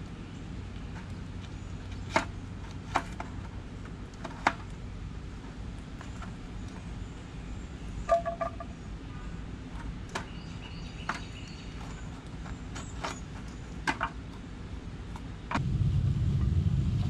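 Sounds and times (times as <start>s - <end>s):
steady low hum: 0.0s - 17.0s
low rumble: 15.6s - 17.0s.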